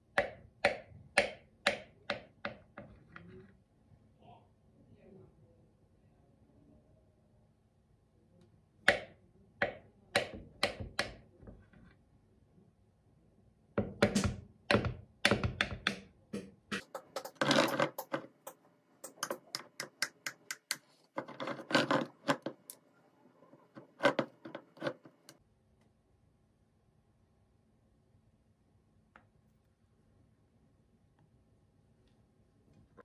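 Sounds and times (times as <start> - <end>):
knife tapping wooden board: 8.9 - 11.2, 13.8 - 20.9.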